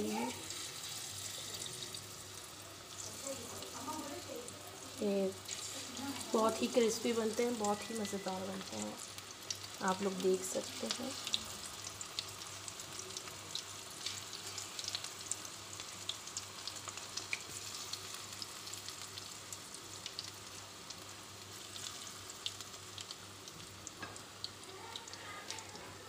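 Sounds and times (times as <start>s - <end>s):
deep-frying sizzle: 0.0s - 26.0s
oil popping and crackling: 5.1s - 25.8s.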